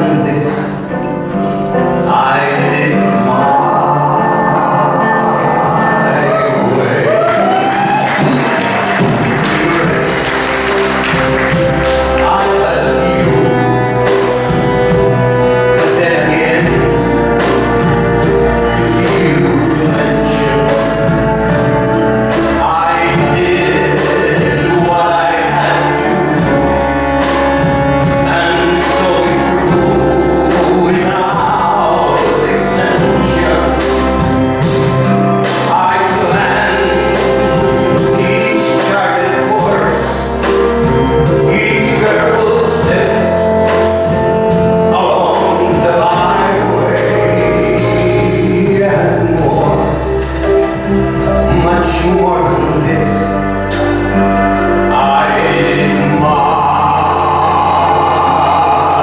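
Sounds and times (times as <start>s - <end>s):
alto saxophone melody: 0.0s - 59.0s
band playing: 0.0s - 59.0s
man singing: 0.0s - 59.0s.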